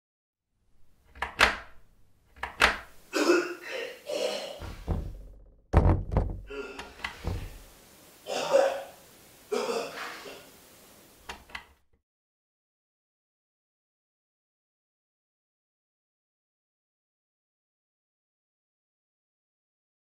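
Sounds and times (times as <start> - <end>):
door handle rattling: 1.0 - 3.0, 4.6 - 7.7
thuds against door: 4.6 - 7.7.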